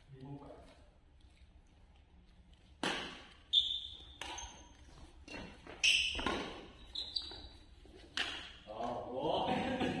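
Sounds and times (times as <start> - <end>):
racket hitting shuttlecock: 2.7 - 7.4, 8.0 - 8.7.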